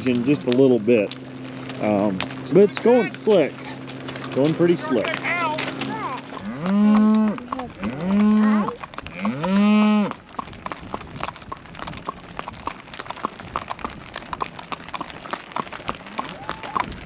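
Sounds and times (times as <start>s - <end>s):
hooves clicking on asphalt: 0.0s - 17.0s
cattle bawling: 2.6s - 10.2s, 15.9s - 17.0s.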